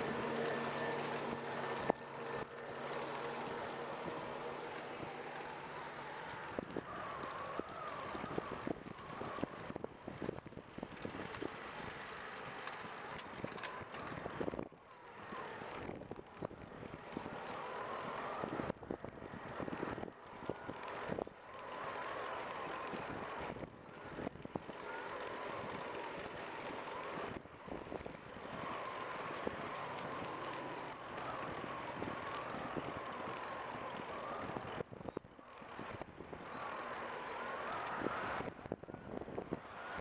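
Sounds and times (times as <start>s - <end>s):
wheels knocking over path joints: 0.0s - 38.4s
faint wavering whine: 0.0s - 40.0s
wind on microphone: 37.9s - 40.0s.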